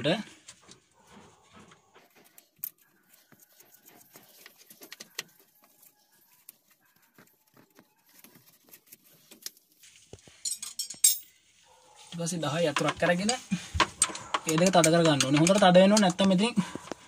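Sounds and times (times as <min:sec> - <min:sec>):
metallic clicks of nuts: 0:12.8 - 0:16.3.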